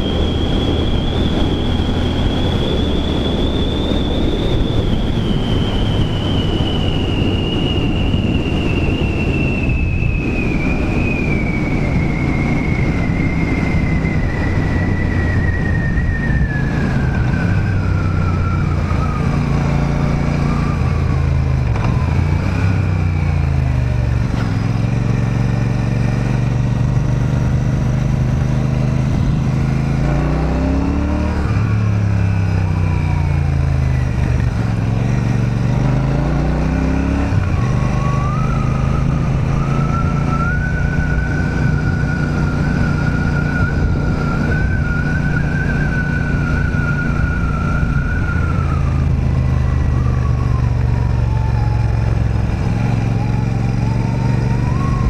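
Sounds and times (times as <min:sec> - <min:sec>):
motorcycle engine running: 0:16.8 - 0:30.1.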